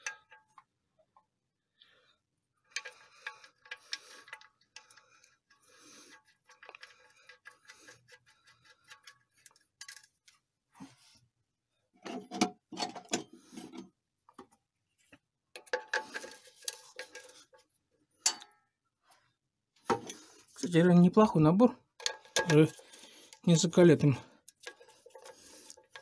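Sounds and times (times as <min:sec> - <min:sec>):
tools clattering and clinking: 0:00.0 - 0:00.6, 0:02.7 - 0:05.0, 0:12.0 - 0:13.9, 0:15.6 - 0:17.6, 0:18.2 - 0:18.6, 0:22.0 - 0:26.0.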